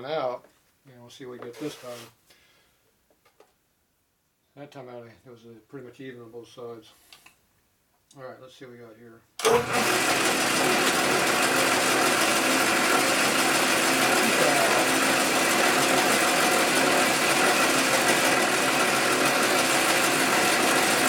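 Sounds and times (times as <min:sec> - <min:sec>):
metal lathe running: 0:09.4 - 0:21.0.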